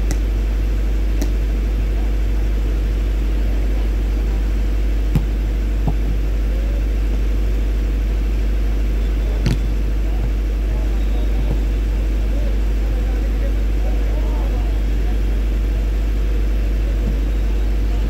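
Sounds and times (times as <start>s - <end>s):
volleyball being struck: 0.0s - 0.4s, 1.1s - 1.6s, 5.0s - 6.4s, 9.3s - 10.4s.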